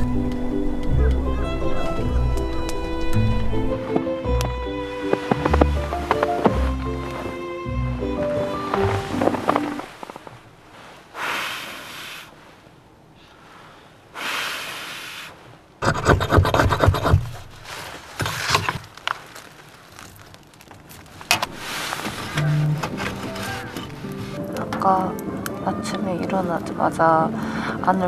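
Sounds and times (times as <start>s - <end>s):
tent fabric rustling: 1.8s - 15.7s, 17.2s - 25.0s
soft breathy hisses: 10.7s - 15.6s.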